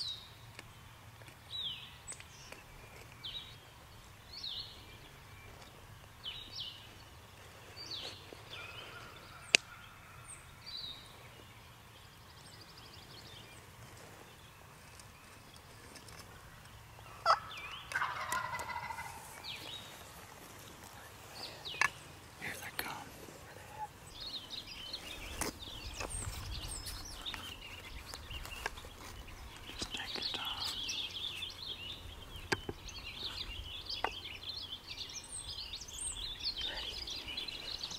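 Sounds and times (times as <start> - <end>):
songbird chirping: 0.0 - 37.9
turkey gobbling: 17.2 - 19.3.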